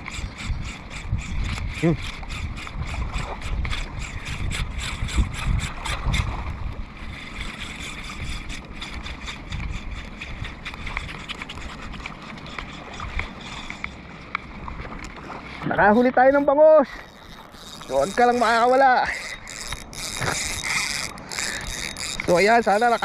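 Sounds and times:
fishing reel clicking: 0.0 - 6.4, 7.0 - 23.0
wind noise on microphone: 0.0 - 13.6.

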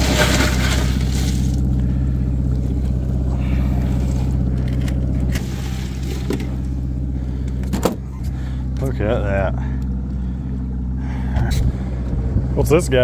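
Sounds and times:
ice crunching in a cooler: 0.0 - 1.6
boat engine humming: 0.0 - 13.0.

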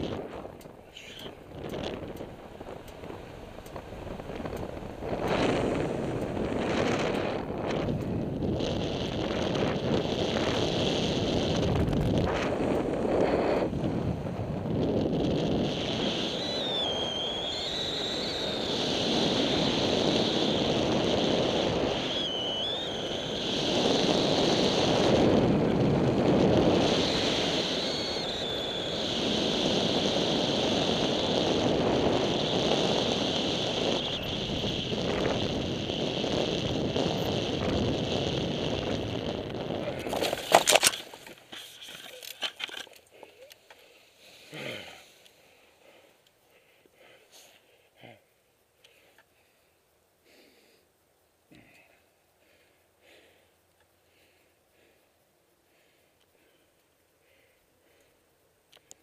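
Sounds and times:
wind rushing over microphone: 0.0 - 41.0
thin high whistle: 15.8 - 24.2, 26.8 - 30.6, 32.2 - 35.0.

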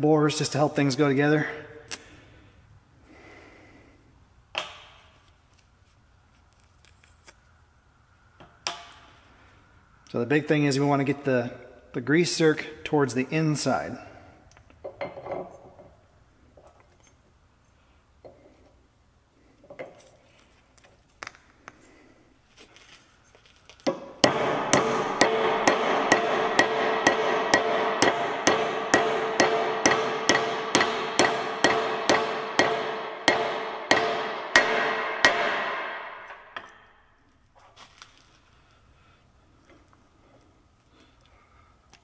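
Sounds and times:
faint clicks of parts handled: 4.5 - 7.6, 19.5 - 21.9, 22.5 - 23.9, 39.6 - 42.0
hammer striking ringing steel: 24.2 - 36.7.

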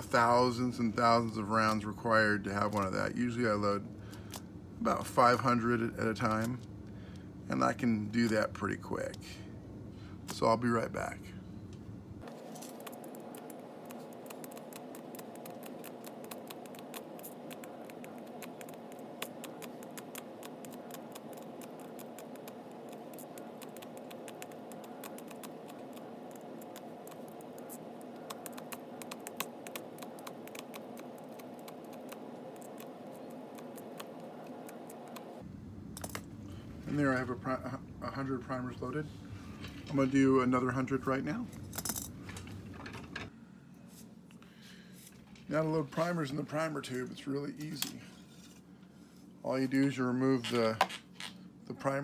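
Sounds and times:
faint steady hum: 0.0 - 52.0
small sharp clicks and scratches: 12.2 - 35.4.

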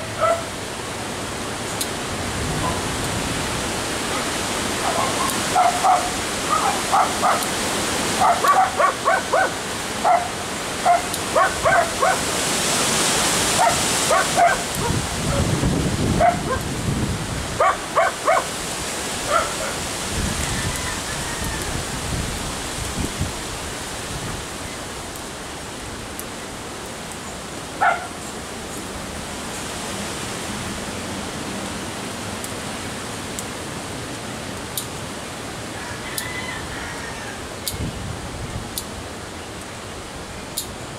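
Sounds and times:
steady background hiss: 0.0 - 20.4
dog barking: 0.2 - 0.5, 2.6 - 2.9, 4.1 - 7.5, 8.2 - 12.3, 13.5 - 15.5, 16.2 - 16.6, 17.6 - 18.5, 19.2 - 19.8, 27.8 - 28.2.

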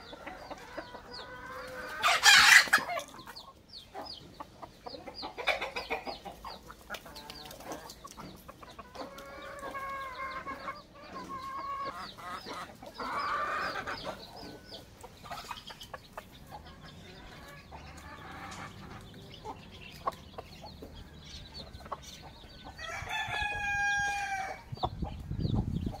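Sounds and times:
chicks peeping: 0.0 - 26.0
hens clucking: 0.0 - 26.0
rooster crowing: 22.8 - 24.6.

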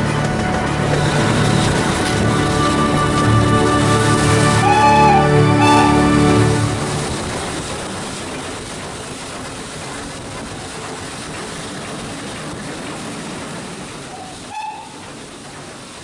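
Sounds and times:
steam locomotive hissing: 0.0 - 16.0
train whistle toot: 1.4 - 7.1, 14.5 - 15.0.

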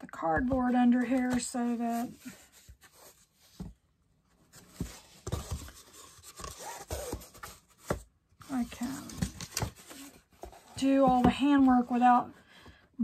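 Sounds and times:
canvas and cardboard rubbing: 4.7 - 7.5.

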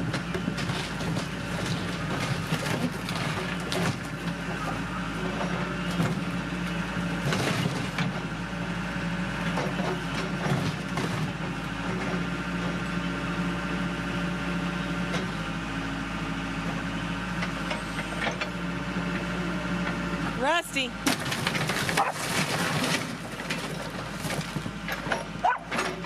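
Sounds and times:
diesel engine running under load: 0.0 - 26.0
wood and plaster cracking: 21.1 - 26.0.

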